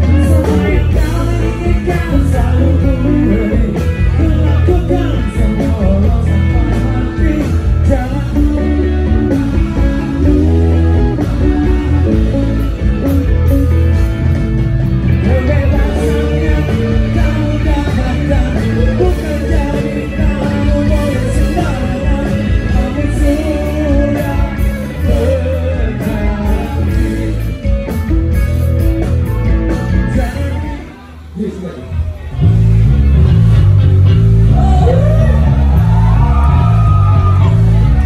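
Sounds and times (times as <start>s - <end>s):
person singing: 0.0s - 12.6s, 15.2s - 27.9s, 34.5s - 38.0s
live rock band playing: 0.0s - 38.0s.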